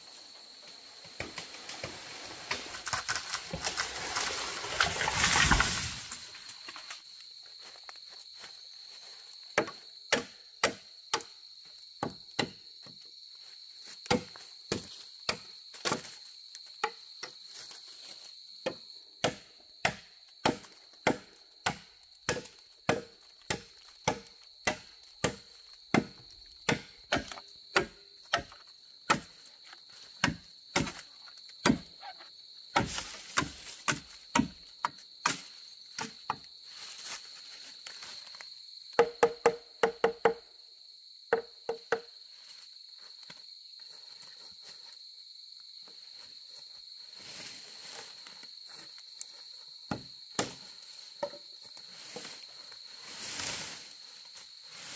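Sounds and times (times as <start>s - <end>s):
machete chopping bamboo: 9.6s - 11.3s, 12.0s - 12.6s, 14.0s - 16.1s, 18.6s - 29.4s, 30.1s - 31.9s, 32.7s - 36.5s, 38.9s - 40.4s, 49.9s - 50.6s.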